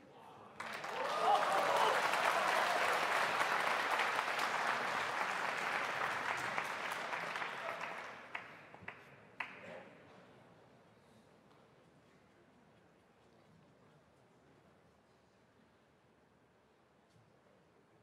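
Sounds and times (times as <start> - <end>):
audience applauding: 0.6 - 9.5.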